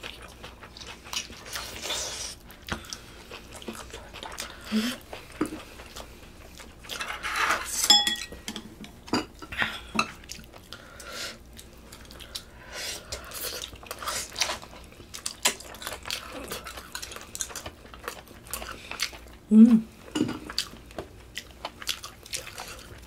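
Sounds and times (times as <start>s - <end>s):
utensils clinking against bowls: 6.9s - 9.3s.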